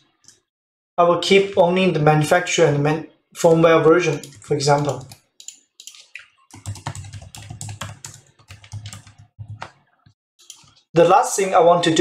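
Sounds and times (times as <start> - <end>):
typing on computer keyboard: 4.1 - 9.8, 10.4 - 10.8.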